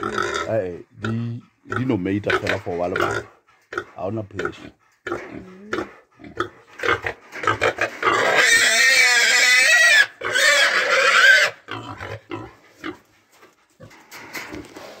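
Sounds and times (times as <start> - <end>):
pig grunting: 0.0 - 13.1
pig squealing: 2.3 - 13.0.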